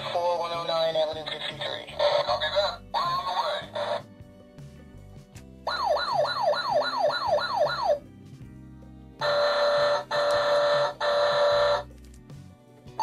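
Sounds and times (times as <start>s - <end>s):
toy fire truck yelping siren: 5.7s - 8.0s, 9.2s - 11.8s
toy horn blasts: 9.2s - 11.8s.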